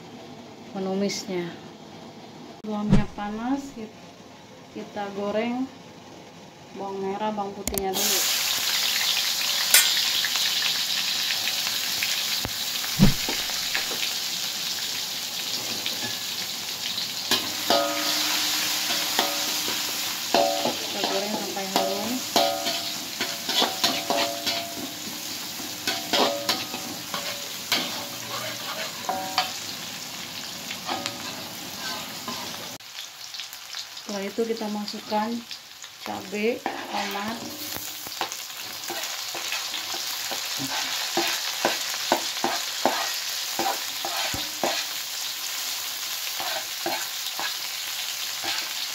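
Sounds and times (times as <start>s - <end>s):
shallots sizzling in hot oil: 6.9s - 48.9s
metal spatula scraping wok: 9.6s - 10.5s, 15.5s - 16.4s, 17.0s - 32.8s, 36.6s - 45.0s, 46.4s - 47.7s, 48.3s - 48.8s
thump: 13.0s - 13.4s.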